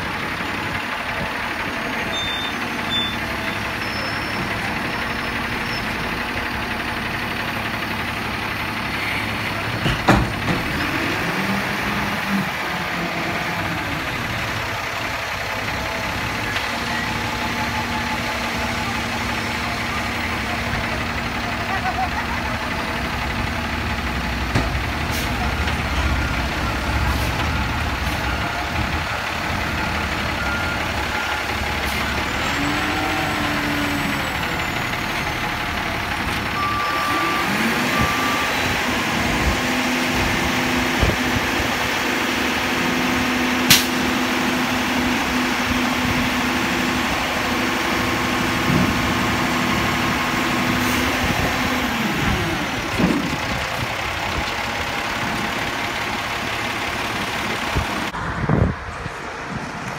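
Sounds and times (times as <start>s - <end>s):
diesel truck engine revving: 0.0s - 59.9s
short beeps: 36.6s - 38.7s.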